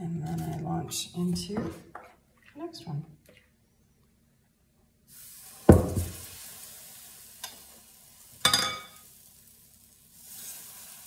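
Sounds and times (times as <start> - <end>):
batter sizzling: 5.1 - 11.0
loud knock: 5.7 - 6.2
ladle clinking on metal pan: 8.4 - 9.0.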